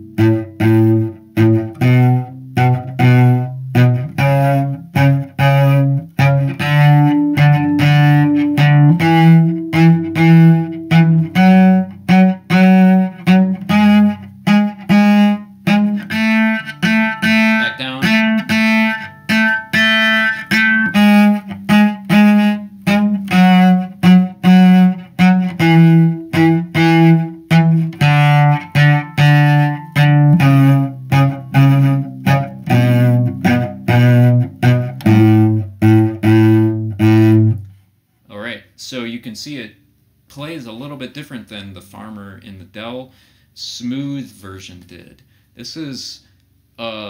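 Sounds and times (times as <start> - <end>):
cello playing a scale: 0.0 - 37.7.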